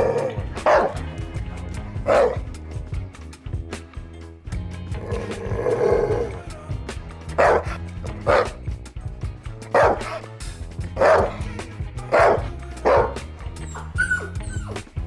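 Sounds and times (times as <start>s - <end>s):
background music: 0.0s - 15.0s
dog barking: 0.6s - 1.0s, 2.1s - 2.4s, 7.4s - 7.7s, 8.3s - 8.6s, 9.7s - 10.2s, 11.0s - 11.4s, 12.1s - 13.2s.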